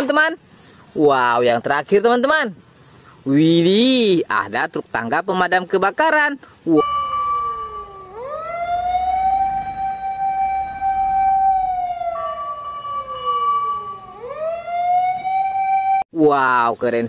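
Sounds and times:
steady higher tone: 6.7s - 16.0s
fire engine siren wailing: 6.8s - 16.0s.

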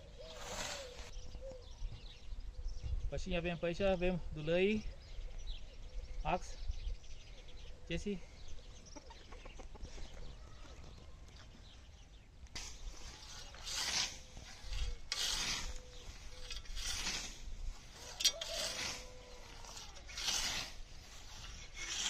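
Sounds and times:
scythe swishing through grass: 0.2s - 1.1s, 12.6s - 22.0s.

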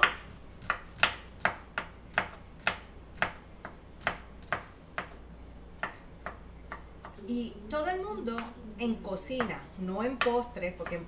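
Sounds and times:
knife chopping on wooden board: 0.0s - 5.2s.

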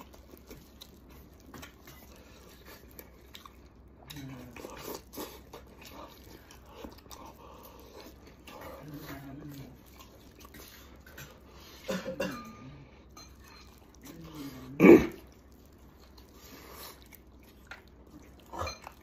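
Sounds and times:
person chewing: 0.0s - 19.0s
closed-mouth hummed vocal sounds: 14.1s - 15.3s.

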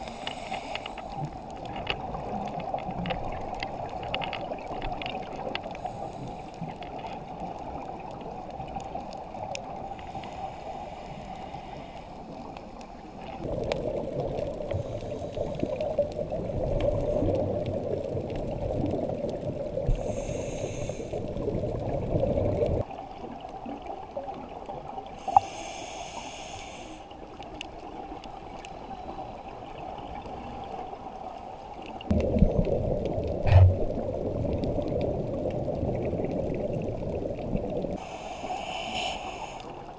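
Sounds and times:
muffled underwater water noise: 0.0s - 39.9s
bubbling: 12.3s - 20.3s, 21.1s - 25.2s, 27.4s - 39.9s.

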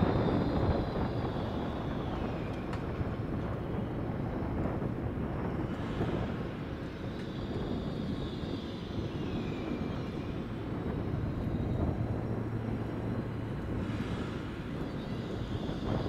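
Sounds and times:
electric train rumbling past: 0.0s - 16.0s
train whine sliding down: 0.0s - 16.0s.

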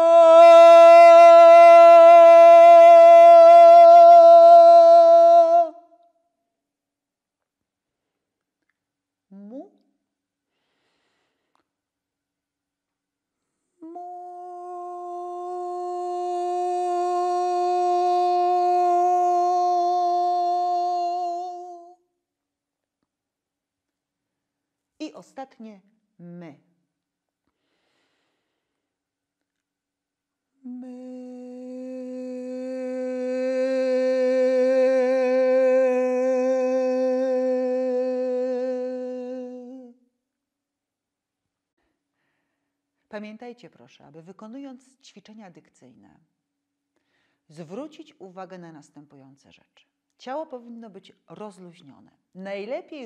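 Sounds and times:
woman singing sustained note: 13.8s - 21.9s, 30.6s - 39.9s.

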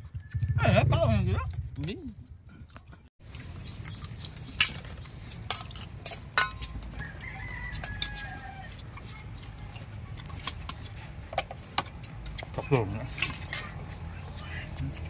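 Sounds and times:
rooster crowing: 6.9s - 8.8s.

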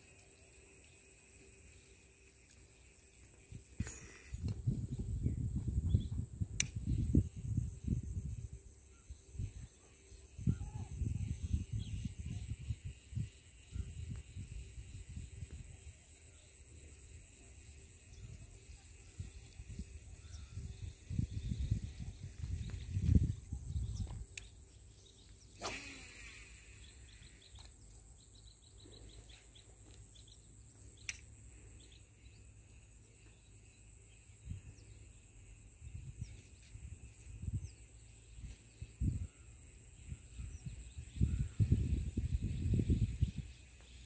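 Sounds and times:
high-pitched insect drone: 0.0s - 6.1s, 6.9s - 44.0s
sharp click: 6.6s - 7.0s, 25.6s - 26.9s, 31.0s - 31.3s
faint bird chirps: 6.8s - 44.0s.

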